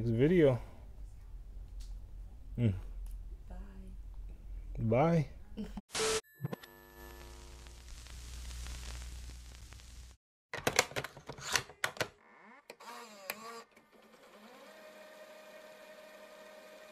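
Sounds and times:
static hiss: 0:05.9 - 0:06.2, 0:06.8 - 0:10.2.

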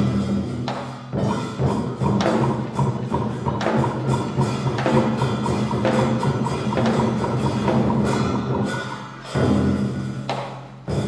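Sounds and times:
percussion strokes: 0:00.0 - 0:11.0.

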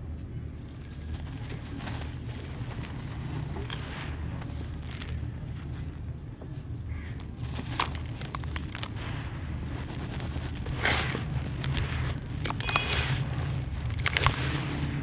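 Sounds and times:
steady low hum: 0:00.0 - 0:15.0
dirt pouring into plastic tub: 0:02.8 - 0:05.3, 0:07.4 - 0:15.0.

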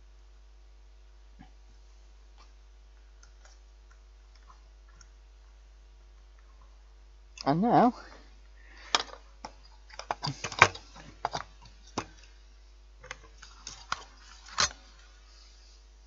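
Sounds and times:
plastic parts clicking and knocking: 0:08.8 - 0:12.3.

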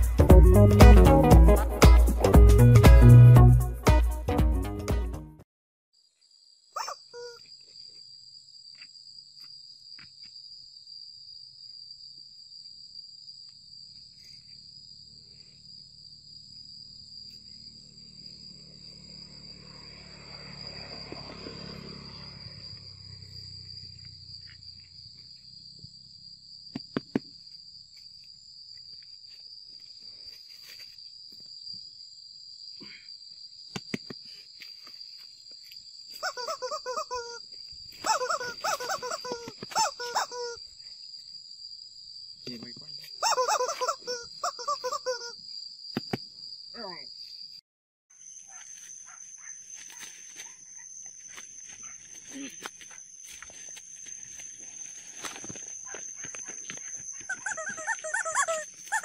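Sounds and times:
insects droning: 0:06.0 - 0:59.0
rubber chicken toy squeaks: 0:06.8 - 0:07.4, 0:36.2 - 0:37.4, 0:38.0 - 0:40.6, 0:43.2 - 0:45.4, 0:57.2 - 0:59.0.

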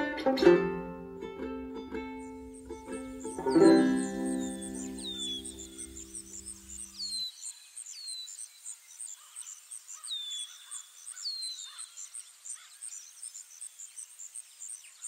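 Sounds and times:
high bird chirping: 0:01.8 - 0:09.4
falling whistled bird calls: 0:02.2 - 0:13.2.

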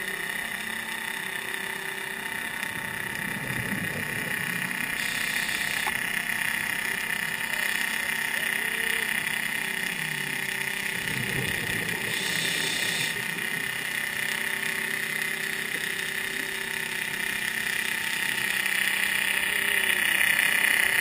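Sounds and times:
boat engine drone underwater: 0:00.0 - 0:21.0
underwater hiss: 0:03.1 - 0:06.0, 0:11.0 - 0:13.7.

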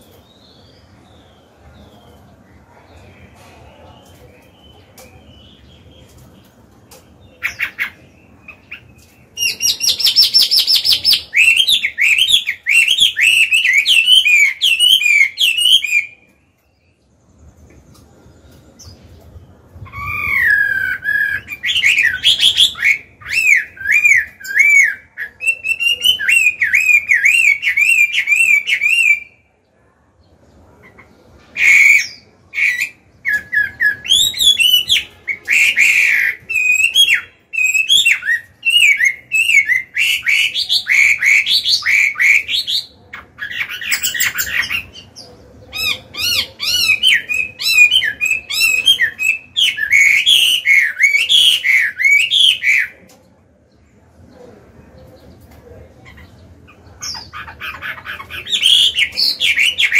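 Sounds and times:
songbird singing whistles: 0:07.4 - 0:16.3, 0:19.8 - 0:29.5, 0:31.6 - 0:45.1, 0:45.7 - 0:53.0.

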